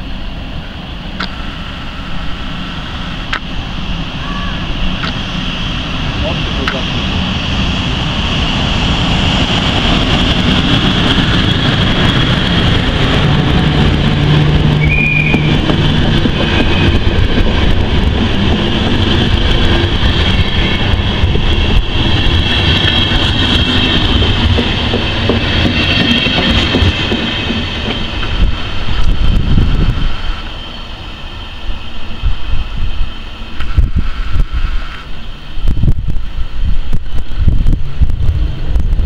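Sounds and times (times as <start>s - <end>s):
train wheels on rails: 0.0s - 39.0s
high-pitched wheel squeal: 14.7s - 17.2s.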